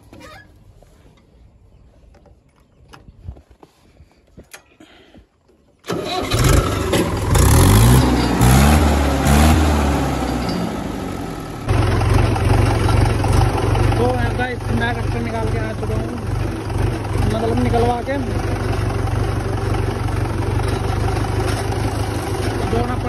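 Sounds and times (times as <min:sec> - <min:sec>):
tractor diesel engine starting: 0:05.8 - 0:23.0.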